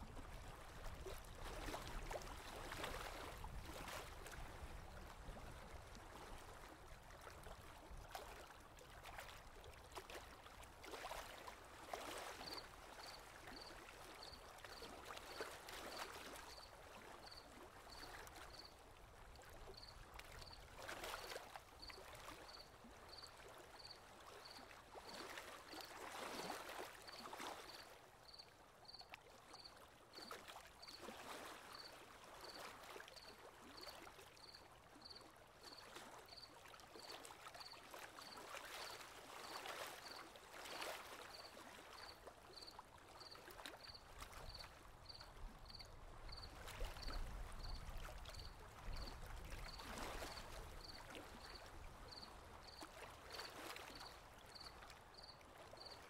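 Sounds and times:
gentle surf waves: 0.0 - 56.0
insect chirping: 42.6 - 49.1, 52.1 - 52.8.

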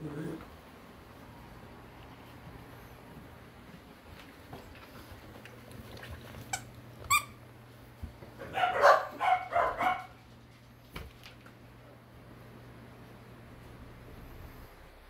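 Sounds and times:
puppy barking: 8.4 - 10.2.

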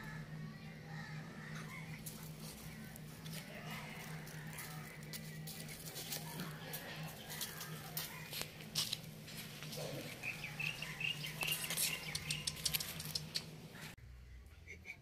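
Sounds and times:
steady low hum: 0.0 - 15.0
puppies scuffling on sand: 2.0 - 14.0
short scattered clicks: 11.4 - 13.5.

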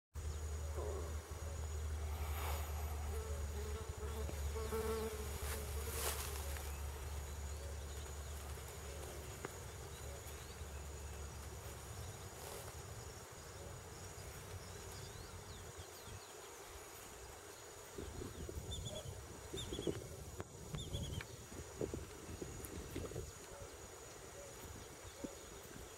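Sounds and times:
insect buzzing: 0.2 - 25.9.

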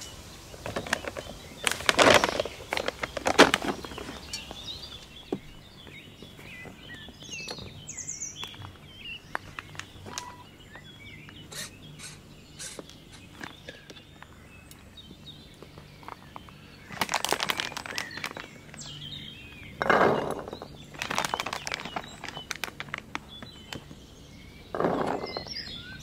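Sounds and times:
small birds chirping: 0.0 - 26.0
rustling and knocks of gear: 0.6 - 10.4, 15.6 - 19.0, 19.8 - 24.0, 24.7 - 25.8.

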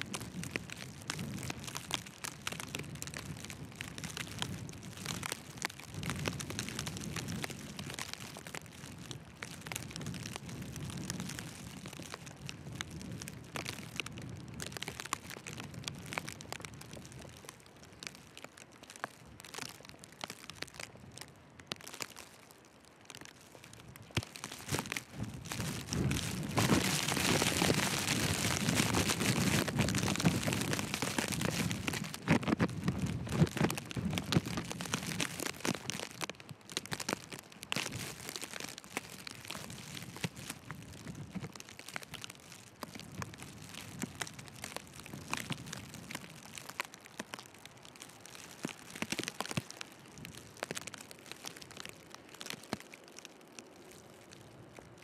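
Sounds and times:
footsteps crunching in snow: 23.5 - 36.1
wind and blowing snow hissing: 24.1 - 35.6.

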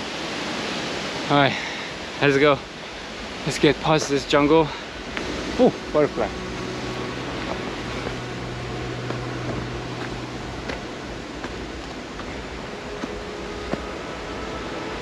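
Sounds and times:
steady hiss: 0.0 - 15.0
low steady hum: 1.6 - 15.0
footsteps on dirt trail: 4.0 - 14.1.

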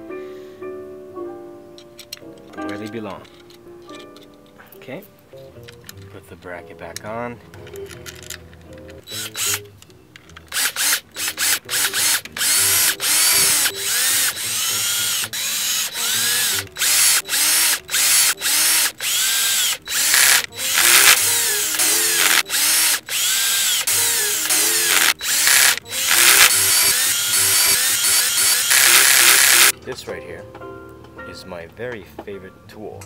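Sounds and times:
cordless drill whirring: 9.1 - 9.7, 10.5 - 29.7.

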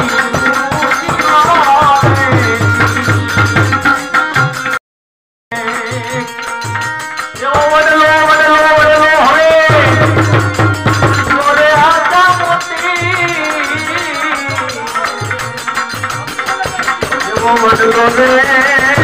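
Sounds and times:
harmonium: 0.0 - 4.8, 5.5 - 19.0
man singing: 0.0 - 4.8, 5.5 - 19.0
tabla drum strokes: 5.6 - 19.0.

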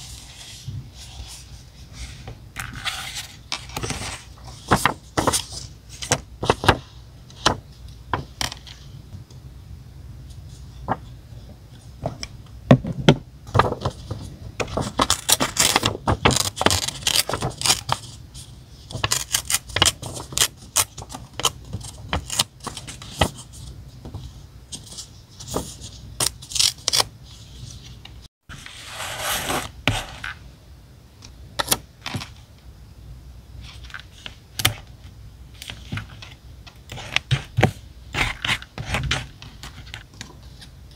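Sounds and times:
paper rustling: 0.0 - 6.8, 13.5 - 26.8.

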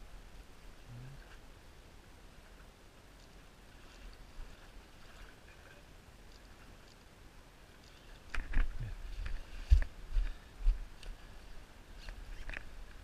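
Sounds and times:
faint outdoor background: 0.0 - 13.0
light ticks: 3.1 - 3.4.

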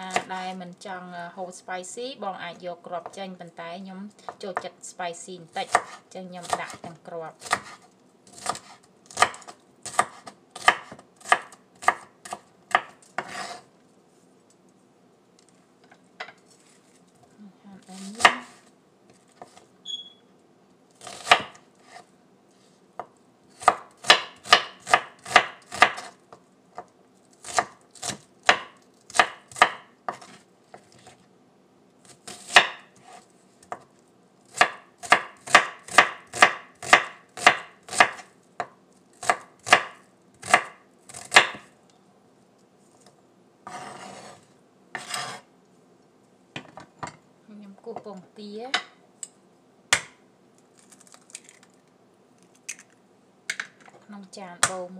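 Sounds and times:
knife chopping on wooden board: 5.6 - 13.6, 18.2 - 18.6, 21.0 - 22.0, 23.0 - 26.2, 27.4 - 31.1, 32.2 - 33.9, 34.5 - 41.7, 49.9 - 50.2.

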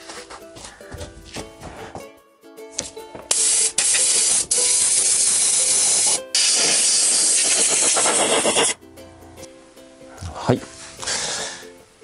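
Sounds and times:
pressurised spray jet hissing: 3.3 - 8.8.

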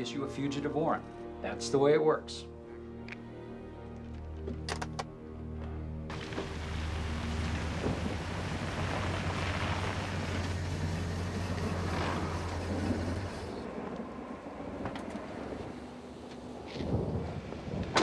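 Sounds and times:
tyre hiss on wet road: 6.1 - 13.6
car engine hum: 6.1 - 13.7.

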